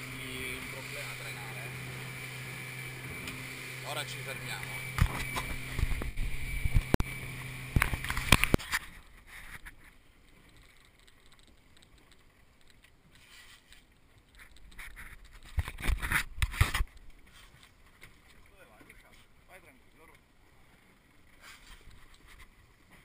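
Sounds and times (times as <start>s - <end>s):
faint water lapping: 0.0s - 6.4s, 16.9s - 23.0s
boat engine running: 0.0s - 8.8s.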